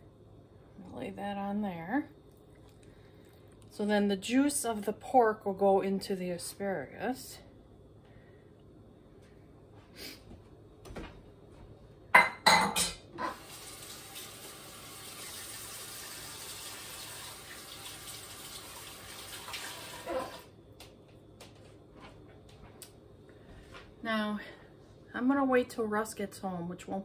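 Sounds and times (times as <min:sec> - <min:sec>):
dishes clattering in a sink: 0:12.1 - 0:13.5, 0:20.0 - 0:20.5
tap water running: 0:13.2 - 0:20.5.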